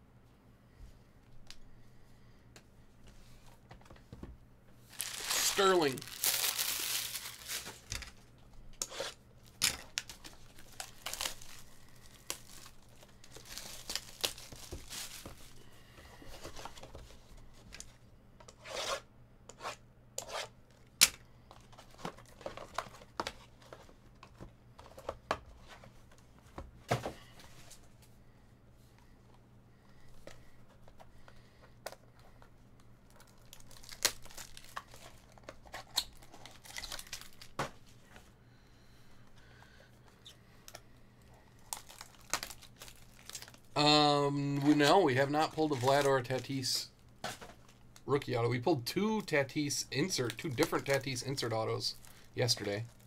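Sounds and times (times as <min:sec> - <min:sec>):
foil pack tearing: 0:04.9 - 0:07.9, 0:10.0 - 0:15.3, 0:33.3 - 0:35.0
plastic wrap tearing and crinkling: 0:04.9 - 0:08.1, 0:09.4 - 0:15.6, 0:33.1 - 0:37.6, 0:41.6 - 0:43.8, 0:44.4 - 0:46.6.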